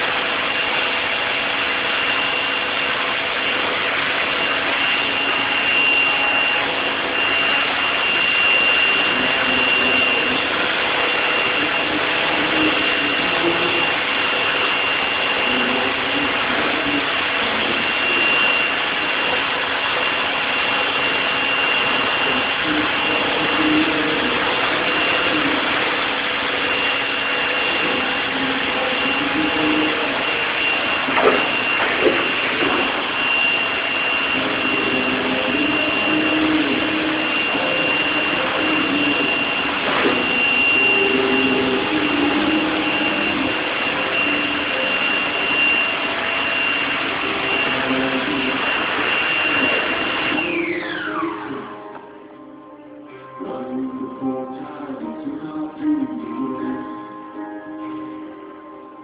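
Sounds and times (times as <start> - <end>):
high machine whine: 0.0 - 59.0
pressure washer jet hissing: 17.4 - 50.6.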